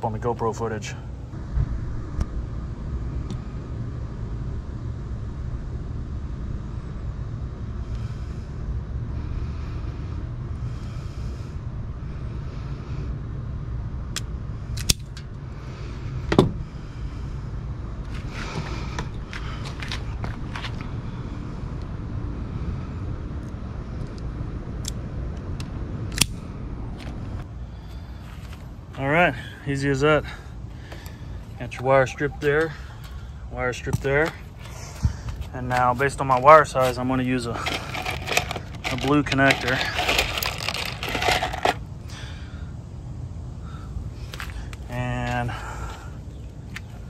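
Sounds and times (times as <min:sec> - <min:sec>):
low outdoor rumble: 0:00.0 - 0:47.0
wire stripper clicks and snap: 0:14.2 - 0:15.2, 0:25.6 - 0:26.4.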